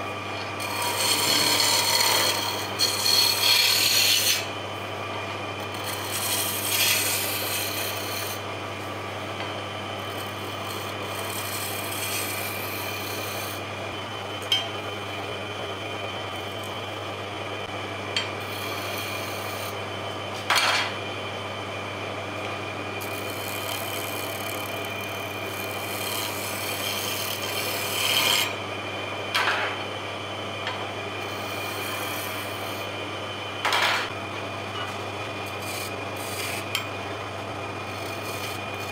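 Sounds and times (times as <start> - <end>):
chisel rasping on spinning wood: 0.0 - 8.5, 9.4 - 13.7, 18.4 - 19.8, 23.0 - 28.6, 31.2 - 32.9, 35.5 - 36.9, 37.8 - 38.9
wood lathe humming: 0.0 - 20.3, 22.1 - 29.2, 30.7 - 33.4, 34.8 - 38.9.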